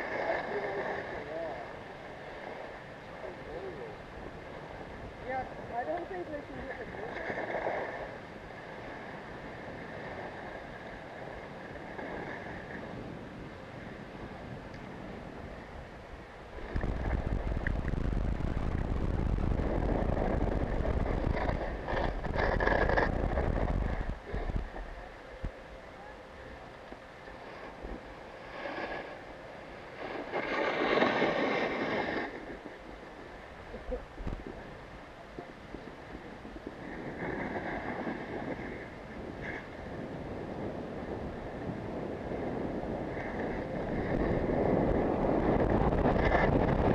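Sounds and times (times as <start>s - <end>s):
wind on microphone: 0.0s - 46.9s
rushing scraping noise: 19.5s - 24.8s.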